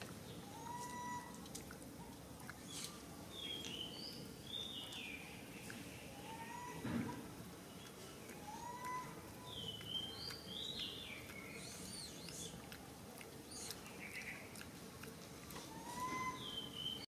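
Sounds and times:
faint outdoor background: 0.0 - 17.0
birds whistling and chirping: 0.3 - 1.4, 2.6 - 6.9, 7.8 - 12.6, 13.5 - 14.5, 15.6 - 17.0.

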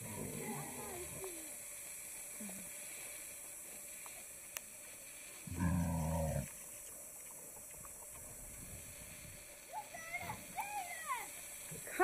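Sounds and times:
pig grunting: 5.5 - 6.5.

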